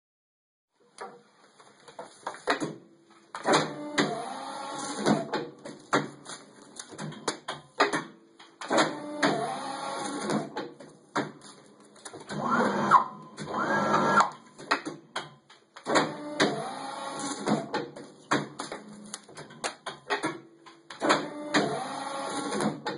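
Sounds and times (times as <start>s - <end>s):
guillotine motor whine: 12.3s - 14.3s
sharp clicks and knocks: 17.4s - 21.7s.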